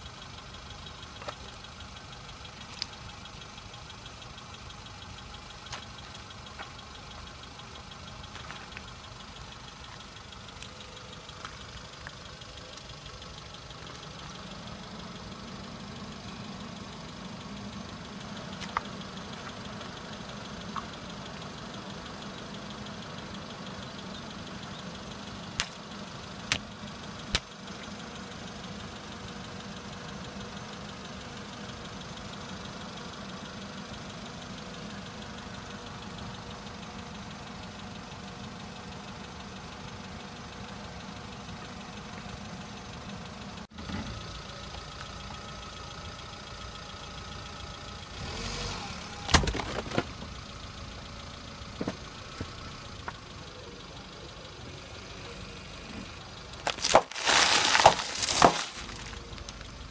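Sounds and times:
car engine idling: 0.0s - 59.9s
tyre rolling over objects: 56.7s - 59.2s.

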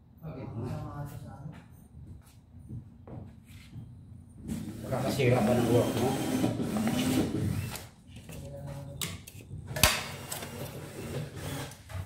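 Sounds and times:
man talking: 4.8s - 6.2s.

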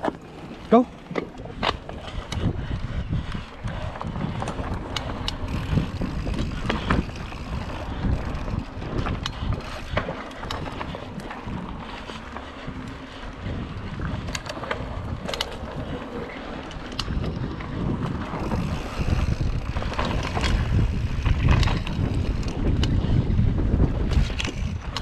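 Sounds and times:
bike tyres rumbling on dirt: 0.0s - 25.0s
wind buffeting microphone: 0.0s - 25.0s
clicks and rattles: 18.4s - 23.0s.

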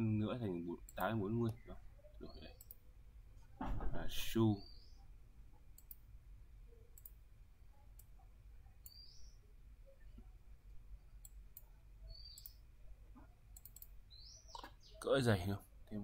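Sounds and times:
computer mouse clicks: 2.6s - 2.8s, 5.7s - 6.0s, 6.9s - 7.2s, 7.9s - 8.2s, 8.8s - 9.3s, 11.2s - 12.6s, 13.2s - 14.8s.

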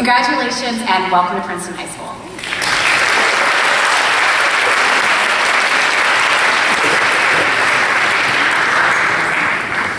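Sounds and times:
audience applauding: 2.4s - 9.9s.

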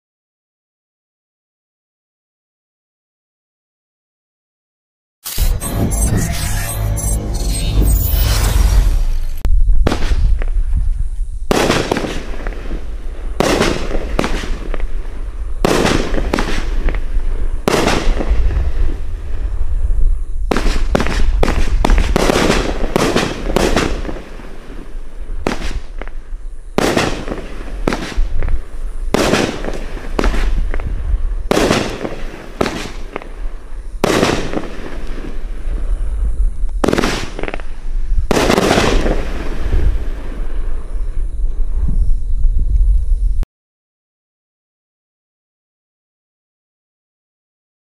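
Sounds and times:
fireworks bangs: 7.8s - 19.6s, 20.5s - 36.0s, 36.8s - 41.2s.

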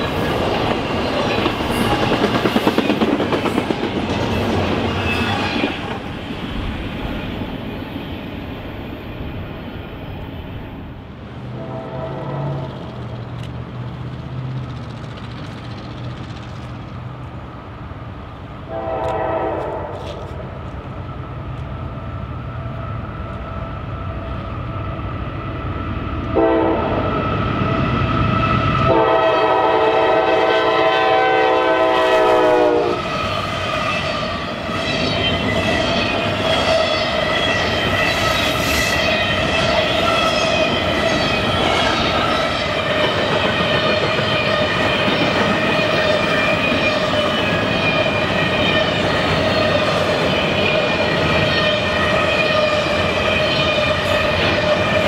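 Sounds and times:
rail and wheel noise: 0.0s - 55.0s
engine rumble: 11.2s - 18.5s
locomotive air horn: 11.5s - 12.7s, 18.7s - 20.4s, 26.3s - 27.1s, 28.6s - 34.2s.

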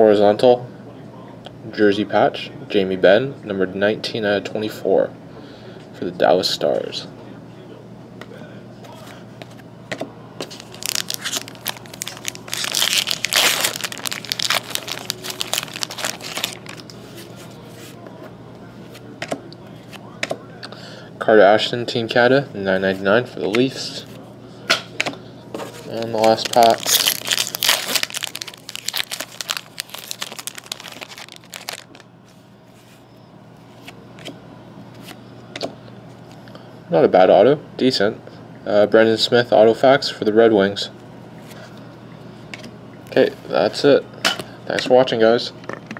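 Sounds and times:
foil wrapper crinkling and tearing: 10.4s - 17.0s, 25.8s - 32.1s.

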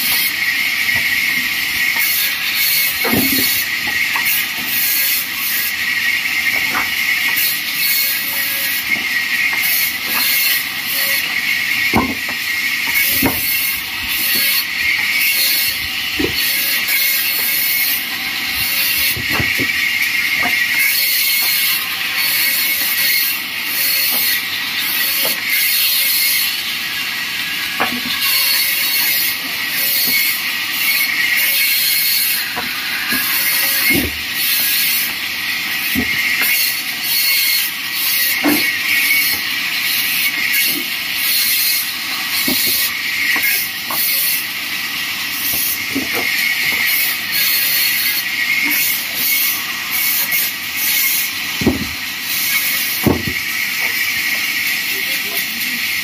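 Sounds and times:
bandsaw cutting timber: 0.0s - 56.0s
wood knocks: 11.9s - 12.4s, 51.6s - 52.0s, 53.0s - 53.4s.

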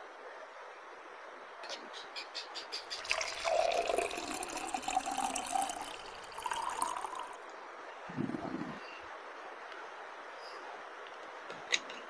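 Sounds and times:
soda pouring and fizzing: 2.9s - 7.5s.

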